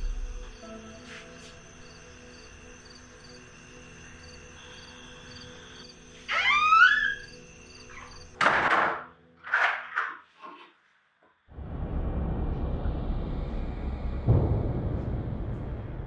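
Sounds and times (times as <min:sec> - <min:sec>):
faint cricket-like chirps: 0:00.0 - 0:08.4
low ambient drone: 0:00.0 - 0:08.4, 0:11.5 - 0:16.0
loud echoing hit: 0:11.6 - 0:16.0.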